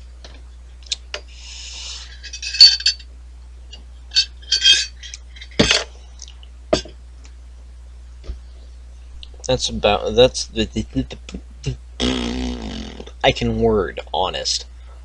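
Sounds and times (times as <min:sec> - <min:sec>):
glass bottle clinking: 0:02.2 - 0:03.0, 0:04.1 - 0:05.8.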